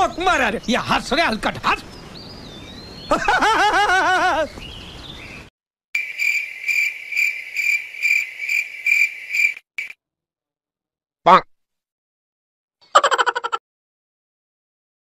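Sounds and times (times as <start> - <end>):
man laughing: 3.1 - 4.6
crickets chirping sound effect: 6.0 - 10.0.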